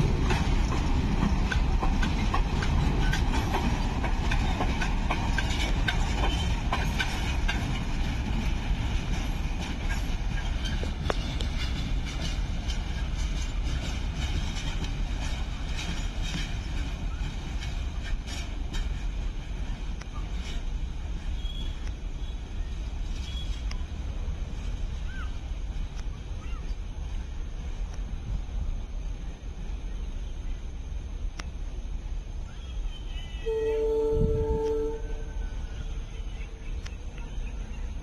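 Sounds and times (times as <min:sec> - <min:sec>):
freight train wheels clacking: 0:00.0 - 0:28.1.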